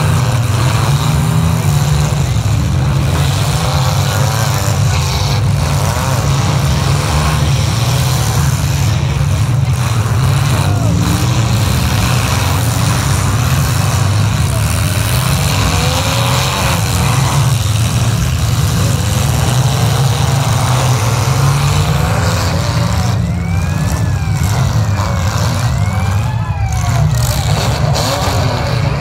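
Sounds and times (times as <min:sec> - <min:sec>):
car engines revving: 0:00.0 - 0:29.0.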